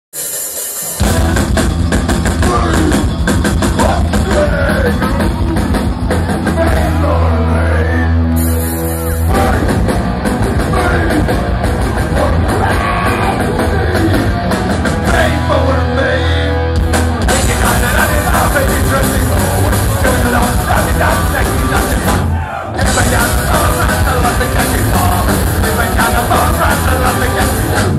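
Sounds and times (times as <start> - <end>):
metal band playing live: 0.2 - 27.9
shouted vocals: 12.1 - 14.4, 17.5 - 27.9.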